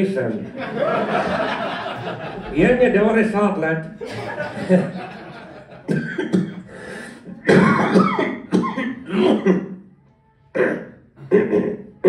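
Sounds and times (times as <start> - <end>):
man coughing hard: 5.9 - 6.7, 7.4 - 9.8.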